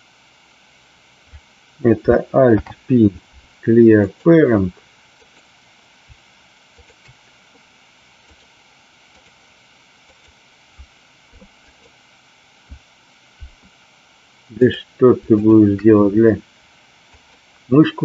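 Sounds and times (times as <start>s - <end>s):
faint steady hiss: 0.0s - 18.0s
mouse clicks: 8.2s - 8.5s.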